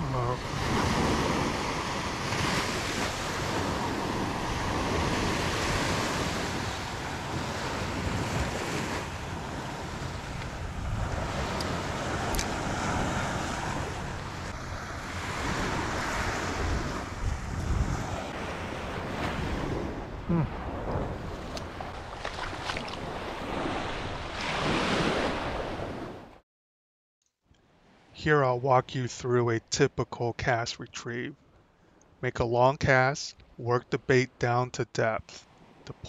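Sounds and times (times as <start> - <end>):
ocean surf breaking on beach: 0.0 - 26.2
wind noise on microphone: 0.4 - 26.0.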